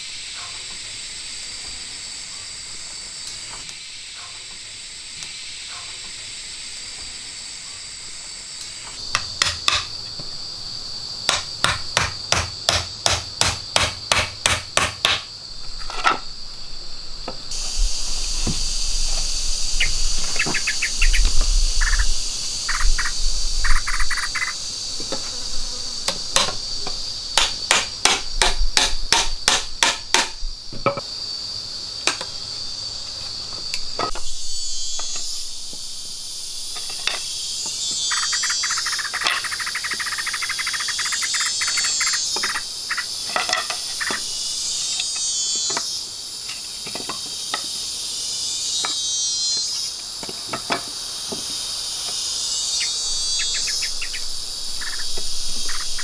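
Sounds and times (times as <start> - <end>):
jungle insects droning: 0.0 - 56.0
tool striking wood: 9.1 - 9.9, 11.3 - 15.3, 27.4 - 31.0.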